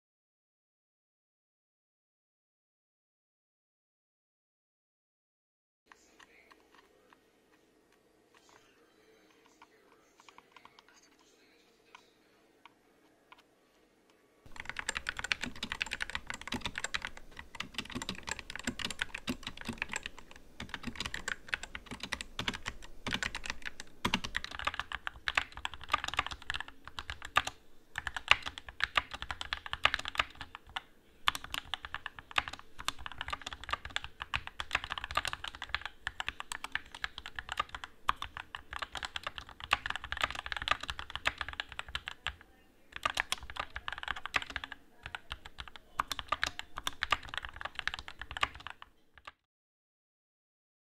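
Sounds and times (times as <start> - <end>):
fast mechanical keyboard typing: 10.2 - 11.0, 14.5 - 49.4.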